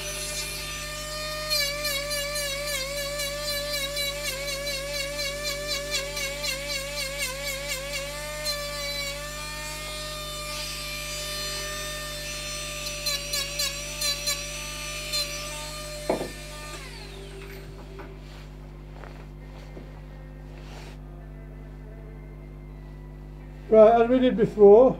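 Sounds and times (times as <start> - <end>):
rotary carving tool whining: 0.0 - 18.6.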